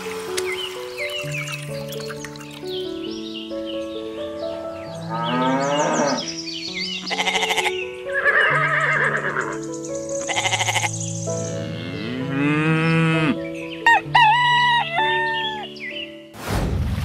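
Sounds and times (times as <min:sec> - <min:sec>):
light background music: 0:00.0 - 0:16.4
farm animal calls: 0:07.0 - 0:09.6, 0:10.2 - 0:11.0.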